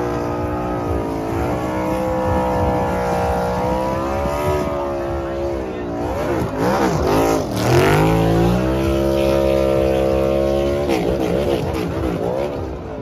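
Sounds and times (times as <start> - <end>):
race car engine revving: 0.0 - 13.0.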